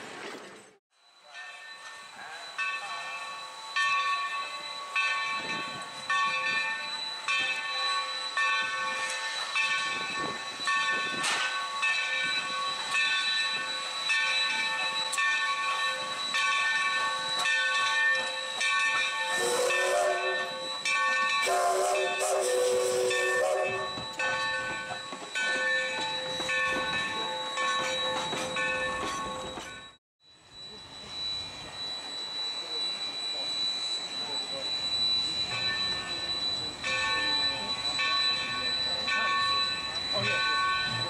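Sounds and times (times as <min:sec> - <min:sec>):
locomotive bell ringing: 0:00.9 - 0:41.0
steam hissing: 0:18.2 - 0:24.1.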